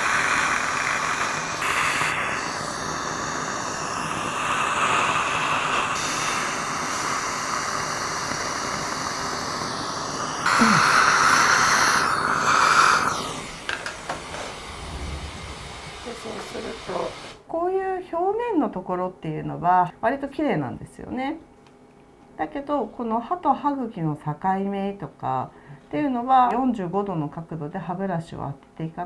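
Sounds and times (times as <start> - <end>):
dental suction hissing and slurping: 0.0 - 17.4
water spraying: 4.6 - 17.4.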